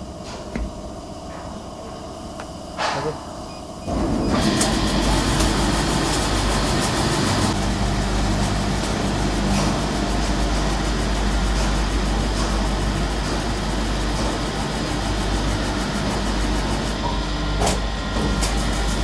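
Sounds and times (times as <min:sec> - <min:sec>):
low motor hum: 0:00.0 - 0:19.0
polishing machine drone: 0:03.9 - 0:19.0.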